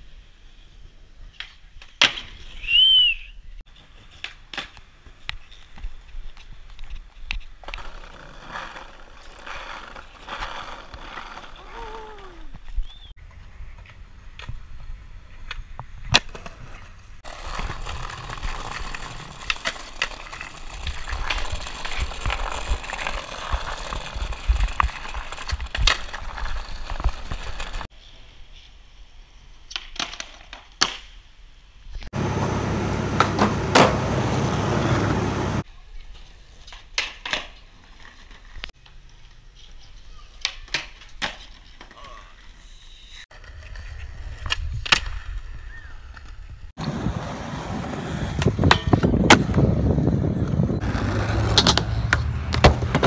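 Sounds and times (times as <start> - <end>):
skateboard wheels rolling on asphalt: 0.0 - 53.0
skateboard clacking on ground: 3.8 - 12.1, 15.4 - 27.8, 32.3 - 42.6, 48.3 - 53.0
skateboard clacks on concrete: 36.1 - 39.0, 50.4 - 53.0.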